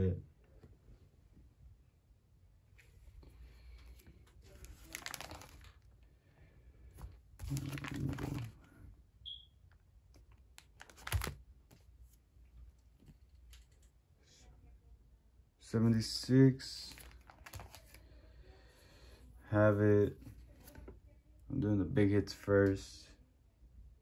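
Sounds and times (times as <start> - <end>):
plastic sleeves rustling: 2.7 - 6.1, 6.8 - 8.9, 10.1 - 13.8, 16.6 - 18.2.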